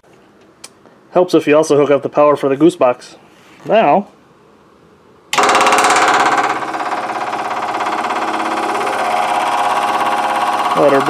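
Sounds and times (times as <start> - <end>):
electric fuel pump buzzing: 5.3 - 11.0.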